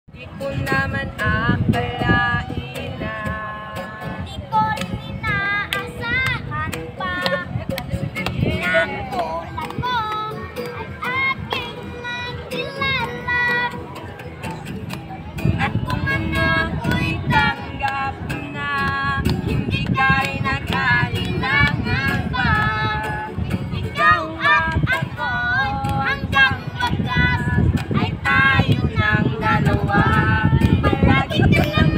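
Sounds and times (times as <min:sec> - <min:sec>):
child singing: 0:00.2 - 0:14.0, 0:15.4 - 0:31.9
sharp taps keeping a beat: 0:04.0 - 0:31.9
light clicking beat: 0:04.7 - 0:11.9.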